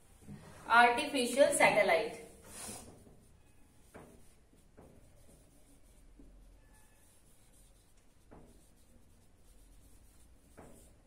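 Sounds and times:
marker strokes on whiteboard: 0.0s - 11.0s.

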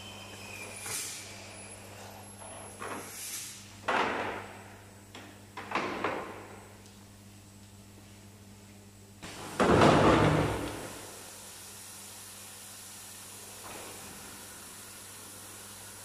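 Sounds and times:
compressed air hiss: 0.6s - 3.8s, 10.7s - 16.0s.

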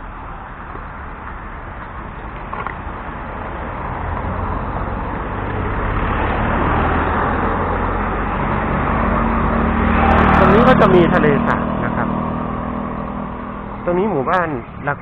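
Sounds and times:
cars passing close by: 0.0s - 15.0s
steady engine hum: 0.0s - 15.0s.

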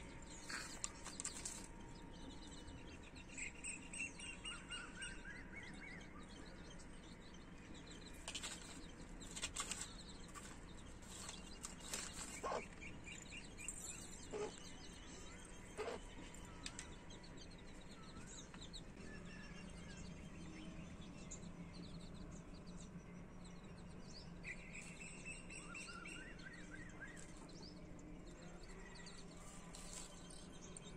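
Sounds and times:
chicks peeping: 0.0s - 5.0s, 5.7s - 19.0s.

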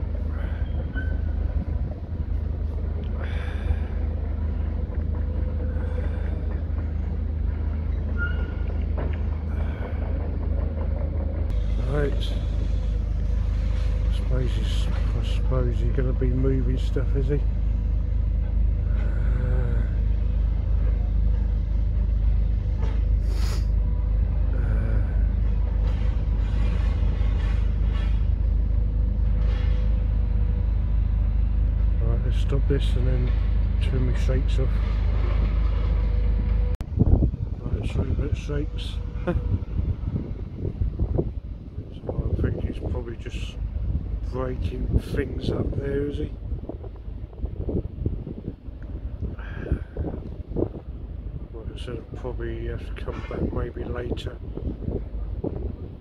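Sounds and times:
distant excavator diesel engine: 0.0s - 56.0s.

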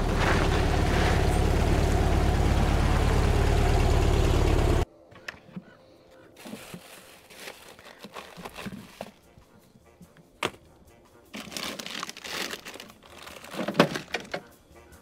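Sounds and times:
crinkling and rustling: 6.3s - 9.5s, 11.3s - 14.5s.

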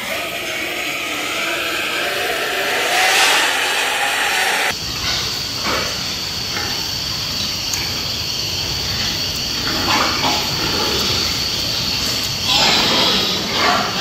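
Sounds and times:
faint high whine: 0.0s - 5.4s
steady hissing background noise: 0.0s - 14.0s.

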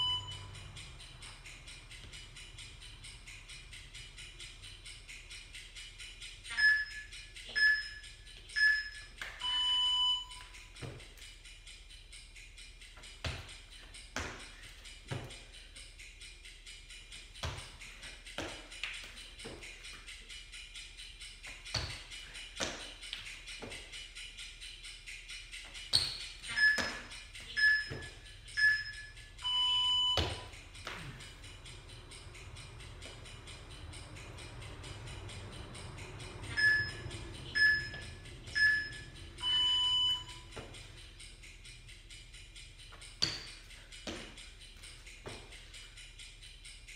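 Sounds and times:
short high timer beeps: 0.0s - 0.6s, 6.5s - 10.6s, 26.4s - 31.1s, 36.5s - 40.6s
long low timer beep: 0.0s - 0.7s, 6.5s - 10.5s, 26.5s - 30.6s, 36.4s - 40.6s
timer beeps: 0.0s - 15.7s, 23.7s - 46.8s
music with fast ticking beat: 0.0s - 46.9s.

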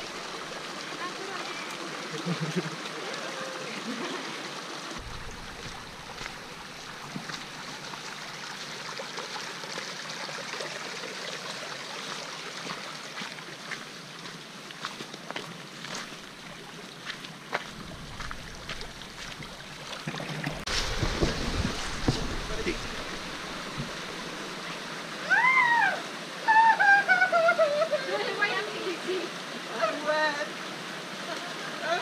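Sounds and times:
stream running over rocks: 0.0s - 32.0s
footsteps crunching on gravel: 5.0s - 7.5s, 13.2s - 19.9s.

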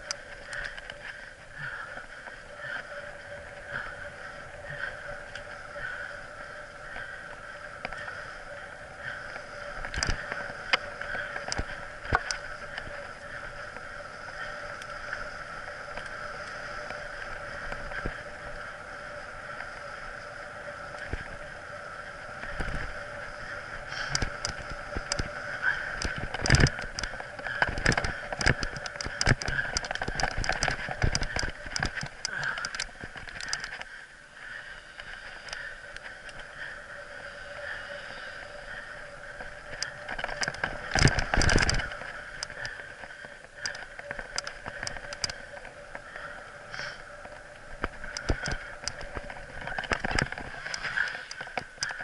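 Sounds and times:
mountain bike tyres whirring: 0.0s - 52.0s
bike knocks and rattles: 23.9s - 33.8s.

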